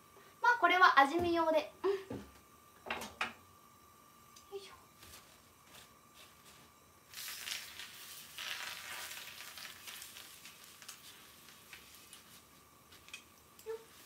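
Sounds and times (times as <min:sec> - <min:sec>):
frying pan sizzling: 0:07.0 - 0:14.0.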